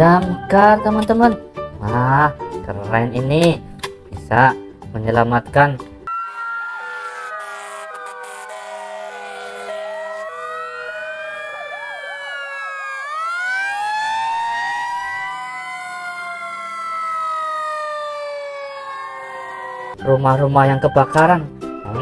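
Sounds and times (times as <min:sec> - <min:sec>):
emergency vehicle sirens wailing: 0:06.1 - 0:22.0.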